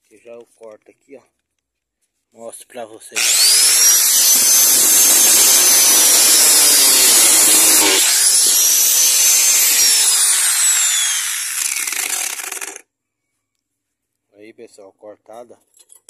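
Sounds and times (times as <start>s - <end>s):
angle grinder cutting steel: 3.2s - 12.8s.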